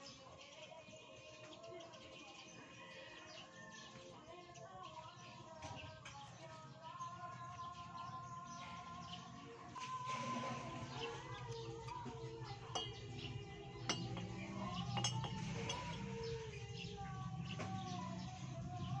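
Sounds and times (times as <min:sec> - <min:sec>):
background music with held notes: 0:00.0 - 0:19.0
metallic clinks of engine parts: 0:11.3 - 0:16.5.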